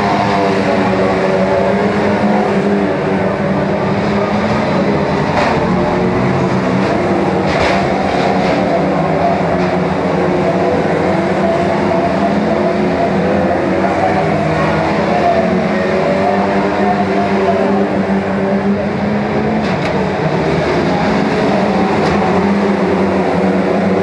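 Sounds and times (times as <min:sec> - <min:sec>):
racing car engines: 0:00.0 - 0:24.0
cars banging into each other: 0:04.3 - 0:10.0.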